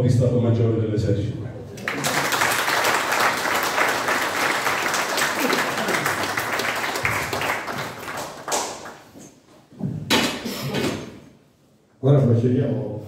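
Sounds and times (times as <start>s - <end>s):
audience applauding: 1.8s - 9.2s.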